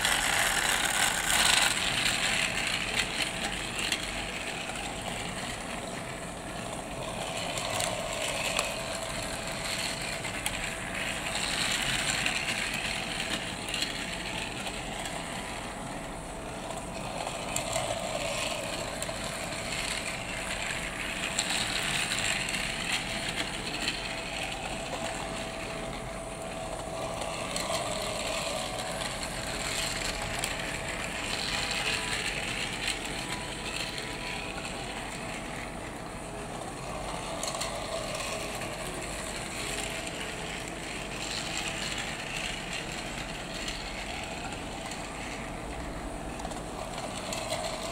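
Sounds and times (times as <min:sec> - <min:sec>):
toy train motor whirring: 0:00.0 - 0:47.9
wheels rattling on plastic track: 0:00.0 - 0:47.9.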